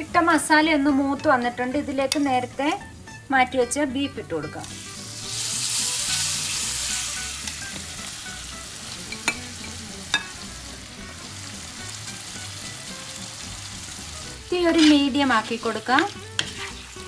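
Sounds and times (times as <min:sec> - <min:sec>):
meat sizzling in hot oil: 0:04.6 - 0:17.0.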